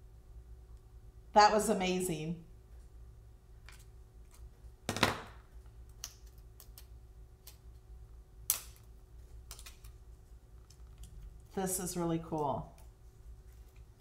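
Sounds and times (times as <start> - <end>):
vinyl crinkling and peeling: 12.8 - 14.0.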